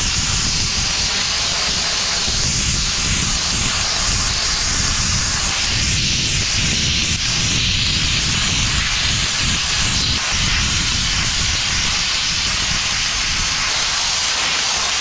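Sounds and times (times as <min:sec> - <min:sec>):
abrasive blasting hiss: 0:00.0 - 0:15.0.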